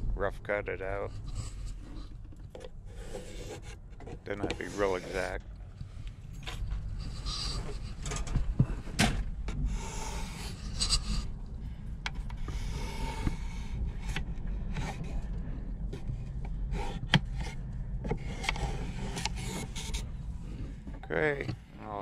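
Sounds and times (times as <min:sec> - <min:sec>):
low steady rumble: 0:00.0 - 0:22.0.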